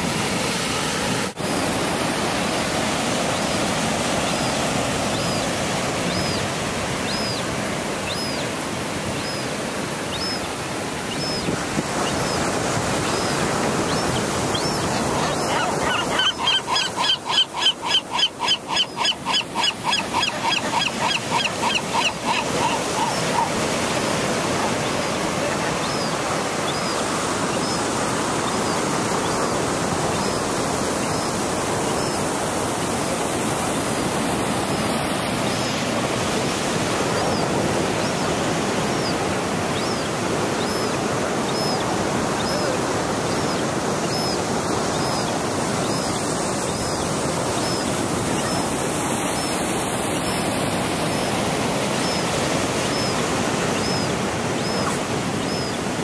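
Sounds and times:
gull chick peeping: 0:09.1 - 0:32.2, 0:52.0 - 0:55.9.

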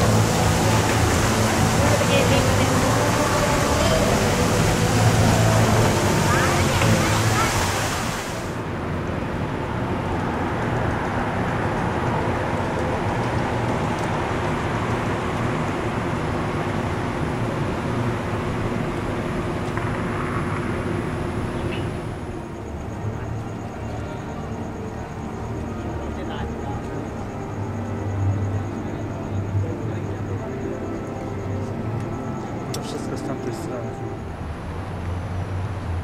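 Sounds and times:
fountain water splashing: 0:00.0 - 0:22.3
low traffic rumble: 0:00.0 - 0:36.0.

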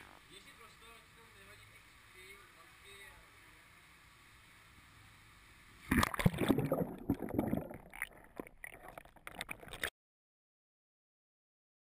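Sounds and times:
camera splashing into water: 0:05.9 - 0:09.9
underwater gurgling and bubbling: 0:05.9 - 0:09.9.

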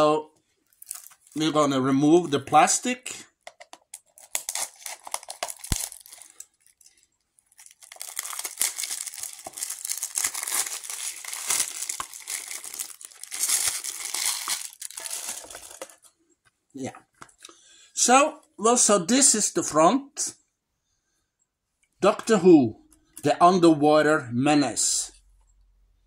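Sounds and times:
plastic shrink-wrap crinkling: 0:00.6 - 0:01.5, 0:03.8 - 0:16.1.

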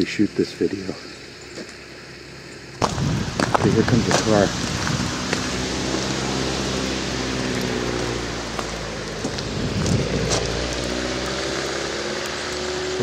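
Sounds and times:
car engine hum: 0:00.0 - 0:13.0
tyres hissing through slush: 0:03.8 - 0:13.0.

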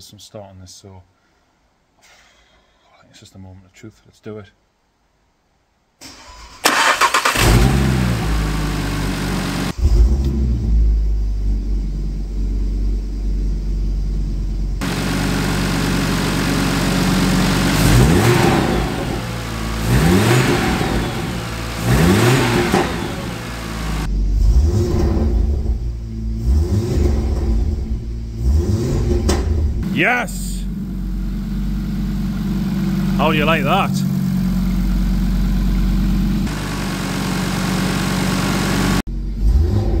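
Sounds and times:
car engine starting and idling: 0:06.0 - 0:40.0
engine revving: 0:06.7 - 0:11.0, 0:14.8 - 0:40.0.

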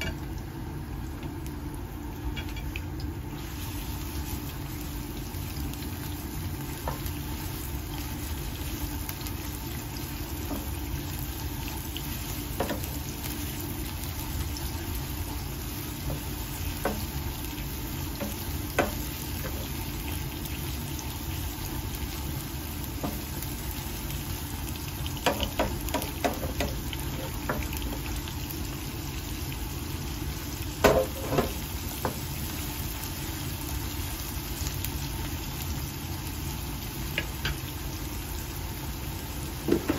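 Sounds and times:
onion sizzling in hot oil: 0:00.0 - 0:39.9
wooden spatula knocking pan: 0:18.2 - 0:19.7, 0:25.2 - 0:27.8, 0:30.8 - 0:32.2.

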